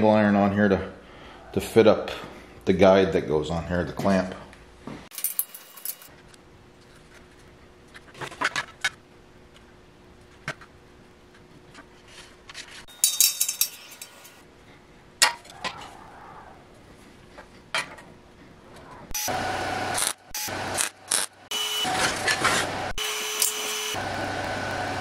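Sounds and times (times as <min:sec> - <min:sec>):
metal clinks and knocks: 0:05.1 - 0:06.1, 0:12.9 - 0:14.4.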